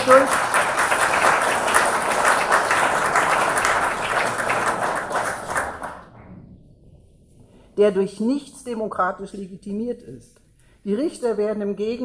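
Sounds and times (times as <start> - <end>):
audience applauding: 0.0 - 6.1.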